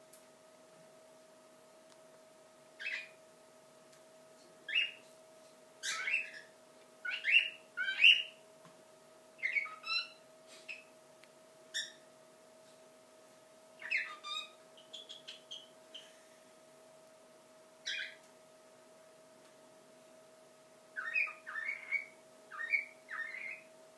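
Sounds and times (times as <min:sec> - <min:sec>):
bird whistling phrases: 0:05.8 - 0:06.5, 0:07.1 - 0:08.3, 0:09.4 - 0:10.9, 0:21.0 - 0:23.6.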